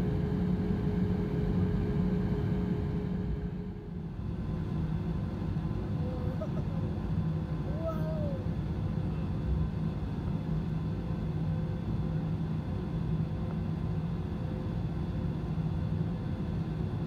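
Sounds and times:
jet cabin hum: 0.0 - 15.5.

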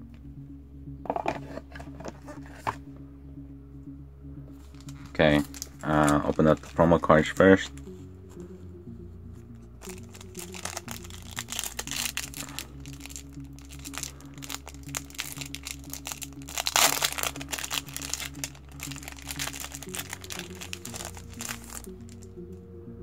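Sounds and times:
background music: 0.0 - 23.0
plastic wrapper crinkling: 4.8 - 6.8, 9.8 - 22.2.

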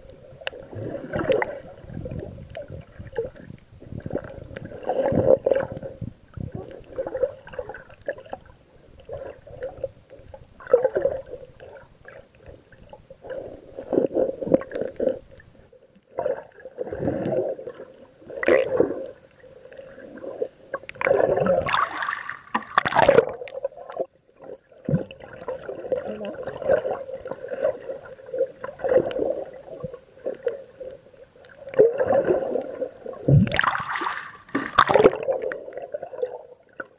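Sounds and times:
muffled underwater sloshing: 0.0 - 36.9.

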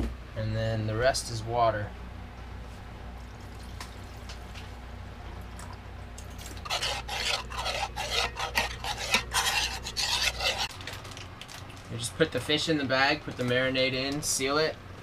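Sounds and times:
utensil scraping a saucepan: 6.4 - 10.7.

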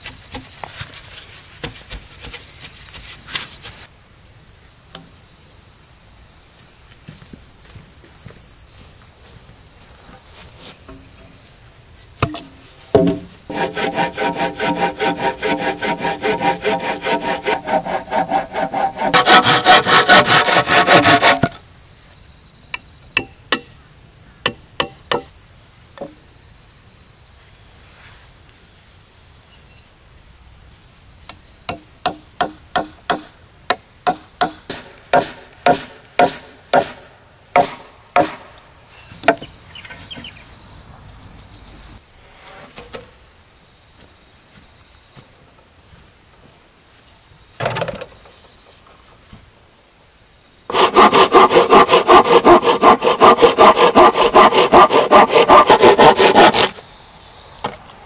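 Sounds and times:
wooden boards knocking: 12.2 - 13.3
saw cutting timber: 13.5 - 21.6, 50.7 - 56.8.

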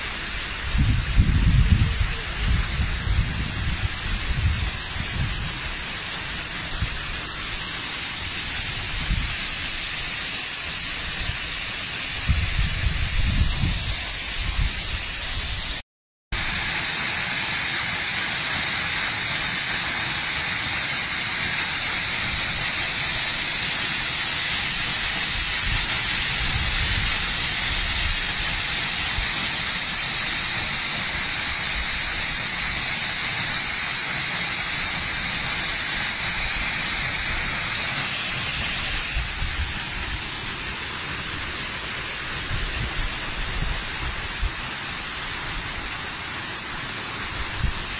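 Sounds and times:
waterfall splashing: 16.4 - 47.9.

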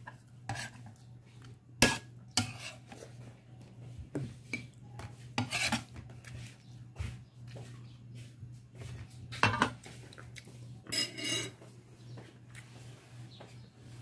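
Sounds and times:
clinks and scrapes on plate: 0.0 - 1.0, 1.8 - 3.0, 5.4 - 6.0, 9.4 - 9.8, 10.9 - 11.7.

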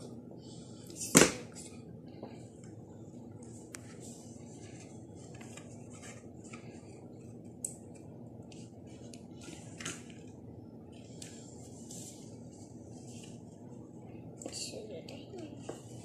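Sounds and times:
paper card rustling and scraping: 3.9 - 6.9.

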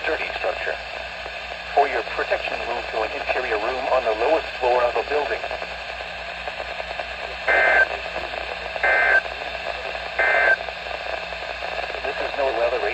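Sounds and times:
radio hiss and hum: 0.0 - 12.9
short data bursts: 7.5 - 7.9, 8.8 - 9.3, 10.2 - 10.6.

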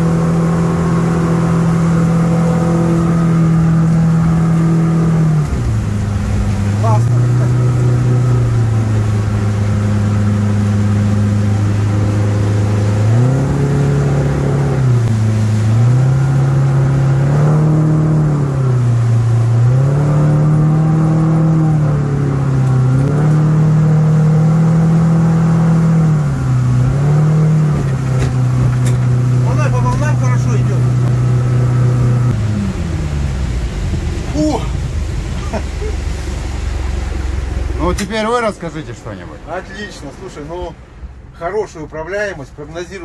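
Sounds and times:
outboard engine revving: 0.0 - 43.0.

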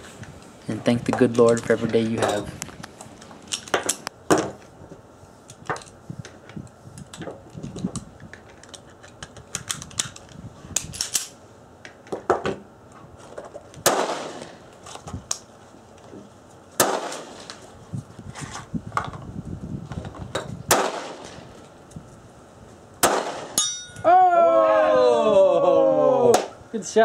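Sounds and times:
pistol shots: 13.8 - 14.6, 16.8 - 17.5, 20.7 - 21.4, 23.0 - 23.7.

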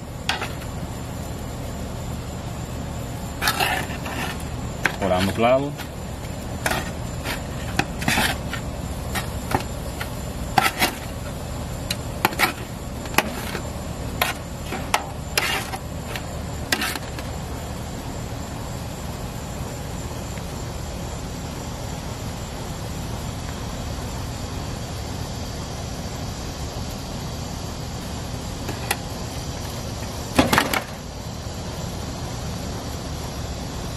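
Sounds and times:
low background hum: 0.0 - 33.9.

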